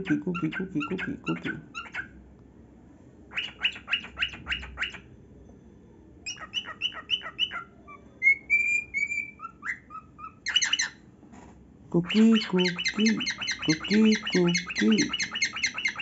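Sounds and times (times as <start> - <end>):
cockatiel chirping: 0.0 - 2.1, 3.3 - 5.1, 6.2 - 11.0, 12.0 - 16.0.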